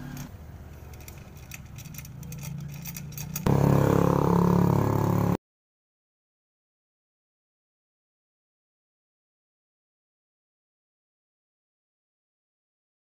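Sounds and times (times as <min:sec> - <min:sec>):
scooter engine revving: 0:02.8 - 0:05.4.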